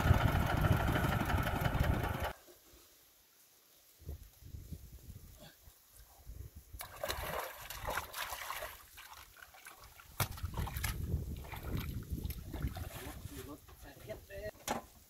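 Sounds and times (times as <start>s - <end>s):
water splashing and sloshing: 6.8s - 13.9s.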